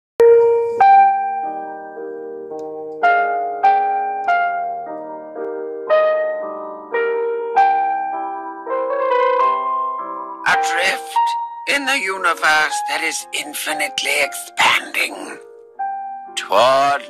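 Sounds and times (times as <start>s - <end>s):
slow solo piano: 0.2s - 10.4s.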